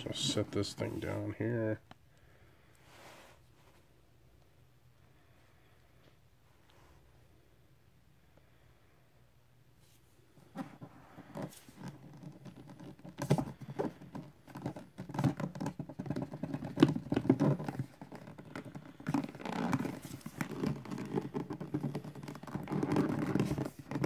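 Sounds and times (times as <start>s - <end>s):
box knocks and scrapes: 10.6s - 24.0s.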